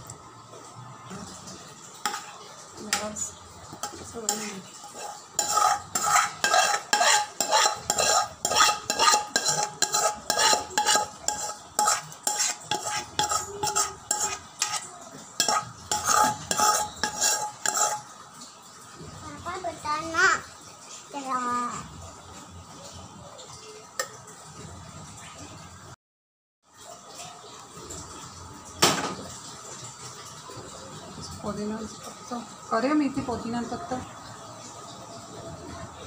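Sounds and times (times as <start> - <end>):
metal spoon scraping a metal pot: 3.8 - 18.1.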